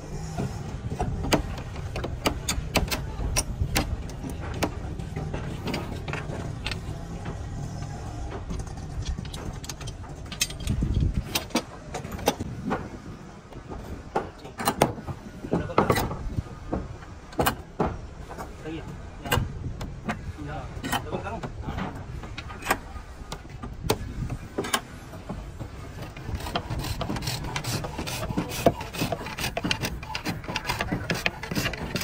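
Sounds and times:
sharp knocks and taps of tools: 1.0 - 7.4.

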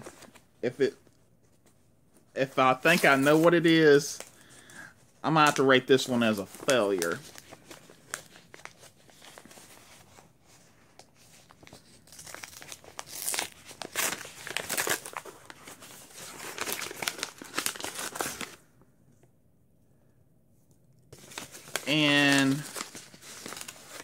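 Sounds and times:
paper envelope tearing and rustling: 11.2 - 18.6, 21.2 - 24.0.

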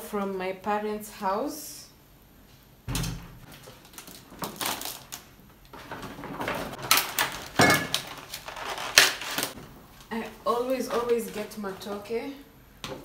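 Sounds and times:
rustling packaging and bags: 3.4 - 12.4.

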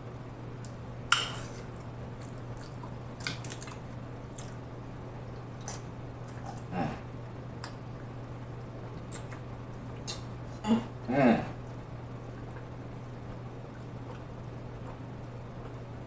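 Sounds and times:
steady low hum: 0.0 - 16.0
man hiccuping: 10.6 - 11.6.

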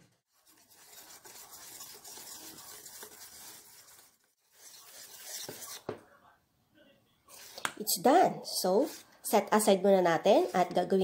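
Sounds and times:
whisk scraping metal bowl: 0.3 - 5.9, 8.6 - 9.1.

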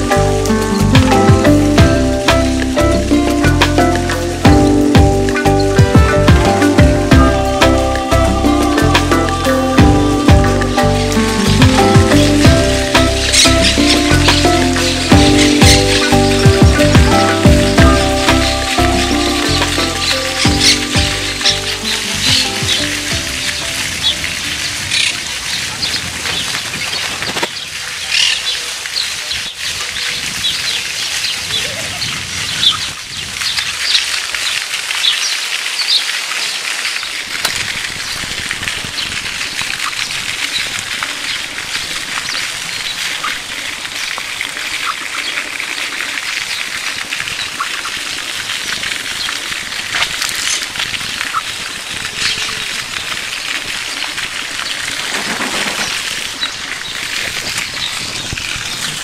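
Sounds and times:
small birds chirping: 10.2 - 37.2, 50.1 - 52.8.

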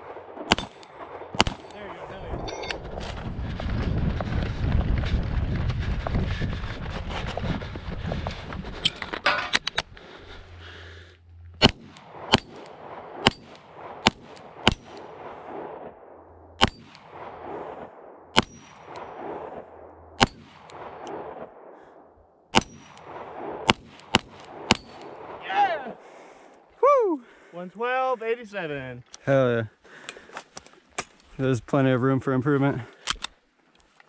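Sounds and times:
handgun shots: 1.4 - 1.8, 11.6 - 15.0
steel target ringing: 11.6 - 12.7, 13.3 - 13.6.

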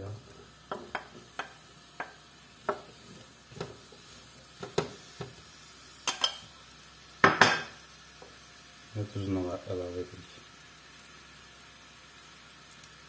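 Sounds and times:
faint sizzle: 0.0 - 13.0
wooden spoon tapping frying pan: 0.7 - 4.0, 4.6 - 5.4, 6.0 - 6.4, 7.2 - 8.4.

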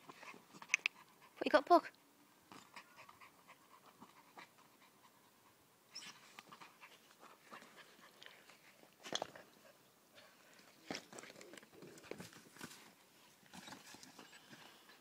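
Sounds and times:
dog panting: 0.0 - 1.6, 2.6 - 5.6, 6.2 - 10.5.

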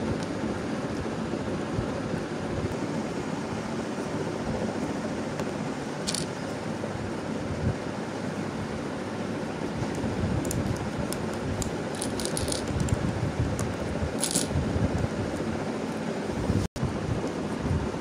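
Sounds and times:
plastic tiles clicking: 6.1 - 6.3, 11.6 - 12.9, 14.2 - 14.5.

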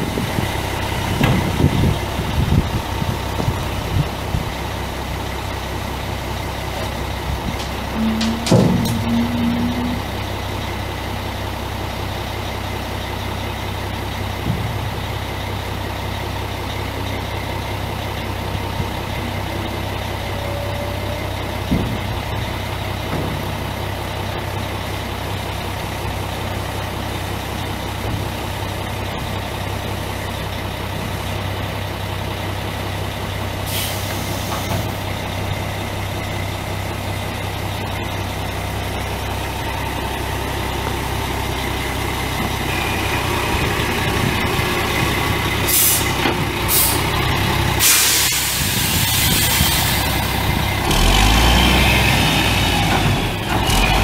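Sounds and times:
diesel truck engine idling: 0.0 - 54.0
air hiss: 47.8 - 50.2.

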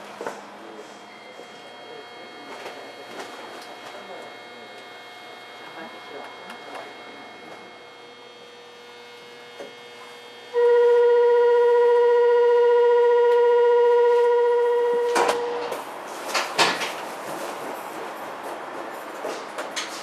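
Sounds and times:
departure buzzer tone: 1.0 - 15.8.

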